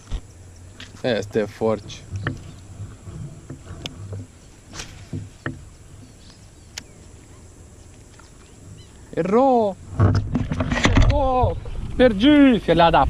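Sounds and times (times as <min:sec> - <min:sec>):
faint outdoor background: 0:00.0 - 0:13.0
low knocks on kayak: 0:03.4 - 0:05.7.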